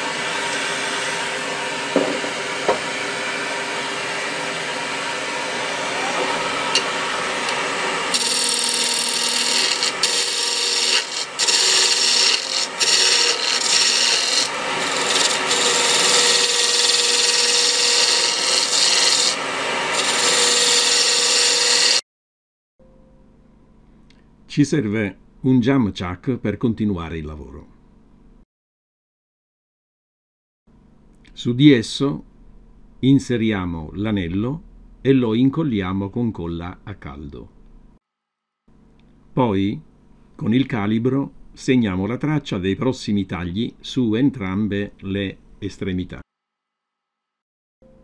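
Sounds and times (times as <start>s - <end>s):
wood lathe spinning: 0.0s - 22.0s
chisel scraping wood: 8.1s - 22.0s.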